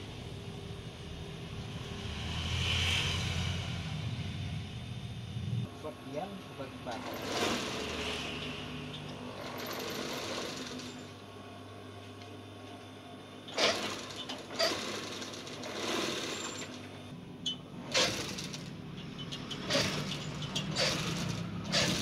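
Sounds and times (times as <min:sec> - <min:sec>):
industrial sewing machine running: 0:06.8 - 0:11.2, 0:13.5 - 0:17.1, 0:17.8 - 0:22.0.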